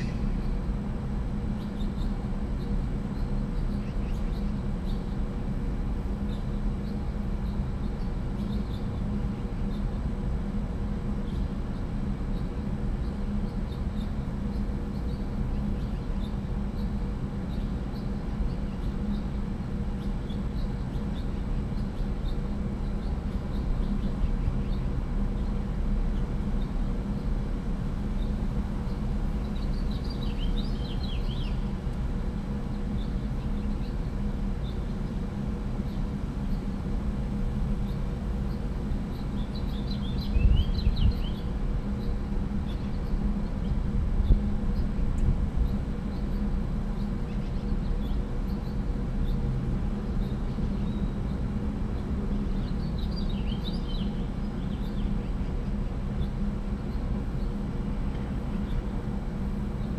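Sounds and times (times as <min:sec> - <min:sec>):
faint bird chirping: 0:00.0 - 0:00.8, 0:01.4 - 0:05.4, 0:06.2 - 0:10.4, 0:11.1 - 0:59.9
low rumble and hum: 0:00.0 - 0:59.9.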